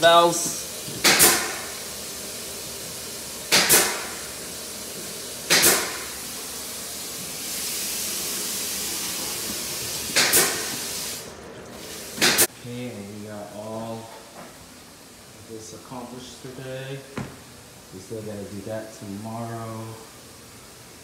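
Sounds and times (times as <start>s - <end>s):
water hissing through valve: 0.0s - 12.5s
short sharp bursts: 3.5s - 4.3s.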